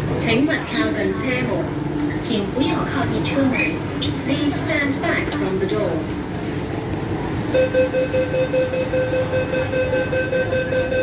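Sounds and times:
low train rumble: 0.0s - 11.0s
high door warning beeps: 7.6s - 11.0s.

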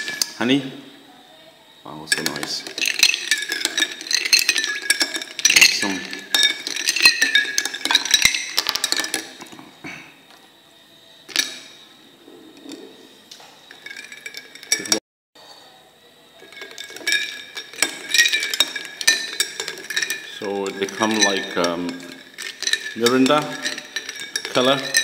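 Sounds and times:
spoon stirring ice in glass: 0.0s - 0.6s, 1.9s - 9.7s, 11.3s - 11.8s, 12.6s - 15.0s, 16.4s - 25.0s.

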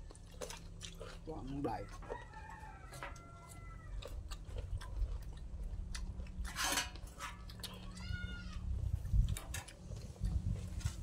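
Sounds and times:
chewing and mouth noises: 0.0s - 11.0s
rooster crowing: 1.7s - 4.1s.

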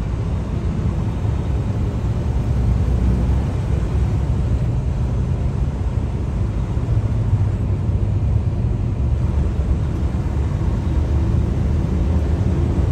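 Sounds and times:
truck engine drone and road noise: 0.0s - 12.9s.

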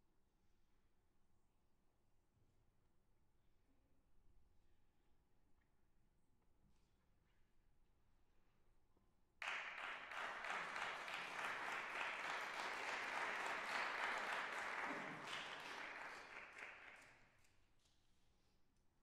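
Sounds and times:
audience applauding: 9.4s - 17.2s.

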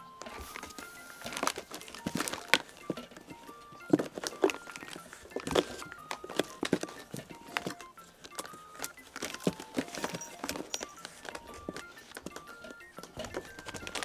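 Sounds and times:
light plucked background music: 0.0s - 14.0s.

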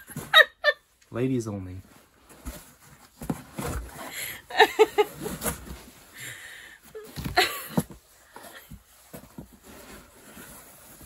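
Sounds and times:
woman laughing: 0.0s - 0.8s, 4.2s - 5.5s, 7.2s - 7.8s.

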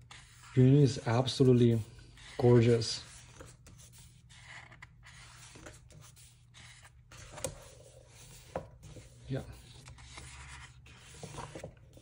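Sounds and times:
photobook pages rustling: 0.1s - 12.0s.

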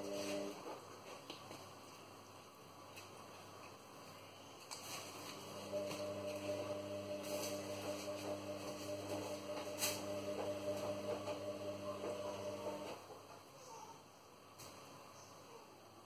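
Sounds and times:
induction hob humming: 0.0s - 0.8s, 5.2s - 13.1s.

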